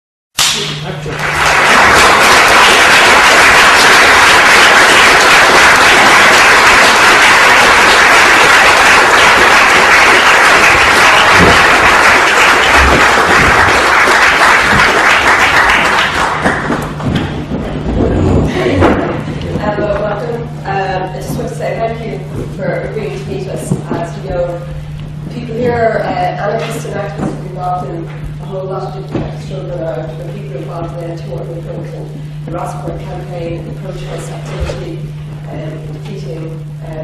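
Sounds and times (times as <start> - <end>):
audience applauding: 0.8 - 17.2.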